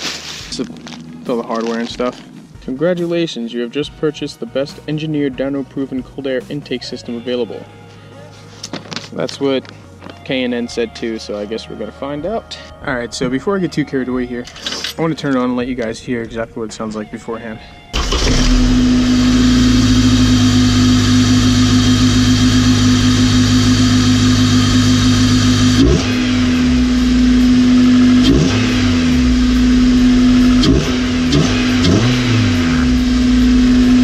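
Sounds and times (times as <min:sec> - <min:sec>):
car engine idling: 0:18.0 - 0:34.0
engine revving: 0:18.0 - 0:34.0.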